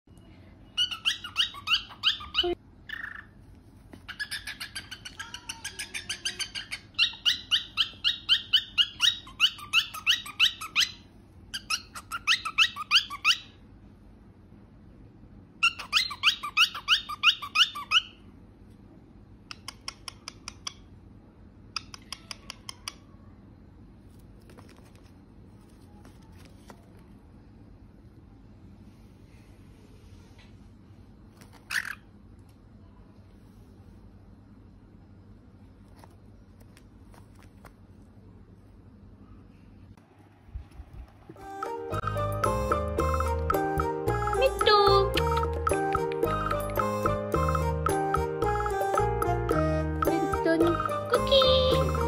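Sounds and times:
cockatiel chirping: 0:00.8 - 0:03.4, 0:04.0 - 0:13.6, 0:15.6 - 0:18.2.

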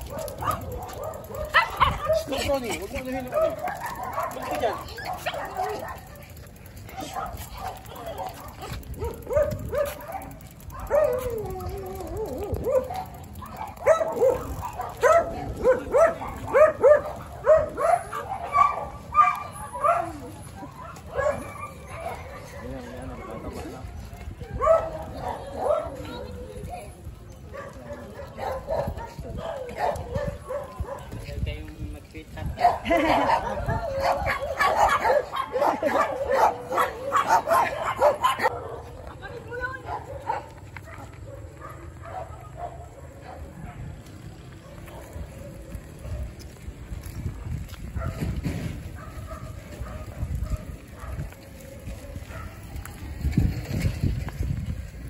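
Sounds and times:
dog yapping: 0:07.0 - 0:22.6, 0:32.6 - 0:38.8.

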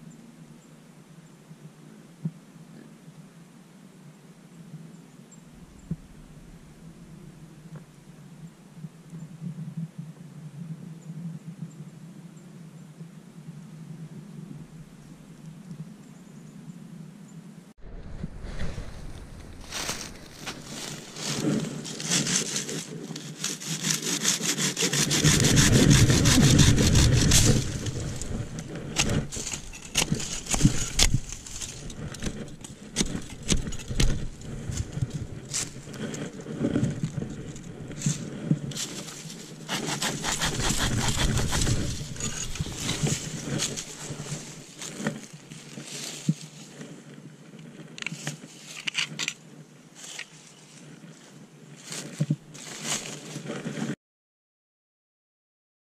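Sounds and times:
rustling: 0:17.8 - 0:49.4, 0:50.0 - 0:53.9
hand saw cutting sapling: 0:19.7 - 0:45.3.

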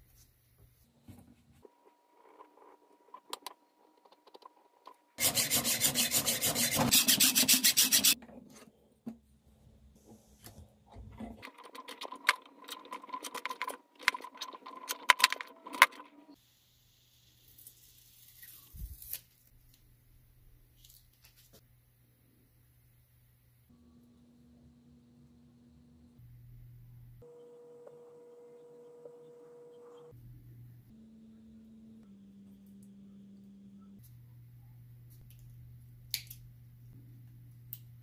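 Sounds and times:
file rasping on metal: 0:05.2 - 0:08.2.

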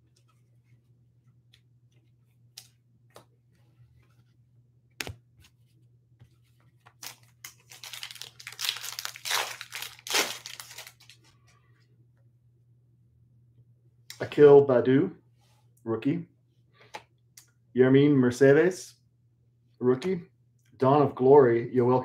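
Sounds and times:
foil wrapper tearing and crinkling: 0:07.0 - 0:11.2.

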